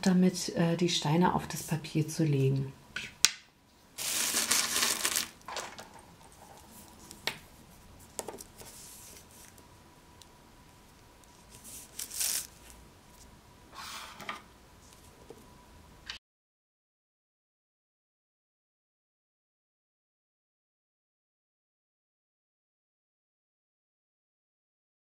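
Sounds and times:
pebbles clicking on paper: 4.0s - 5.8s
paper rustling: 4.0s - 7.3s, 8.0s - 9.6s, 11.2s - 12.8s.

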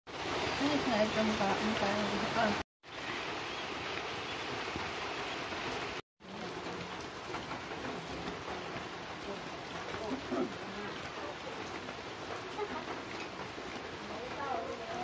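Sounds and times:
steady rain-like hiss: 0.1s - 15.0s.

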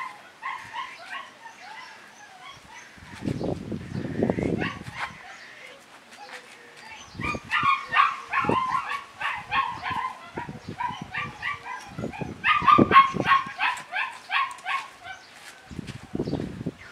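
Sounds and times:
puppy yapping: 7.2s - 15.3s.

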